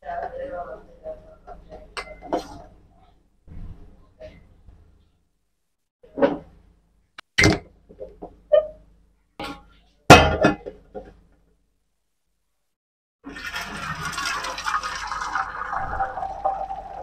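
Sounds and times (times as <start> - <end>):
hot water pouring through colander: 13.2 - 17.0.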